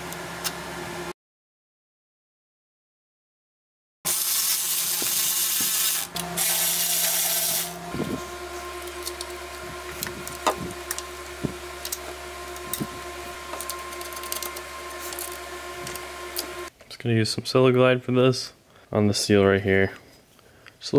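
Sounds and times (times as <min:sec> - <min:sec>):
steady hum: 0:04.1 - 0:16.7.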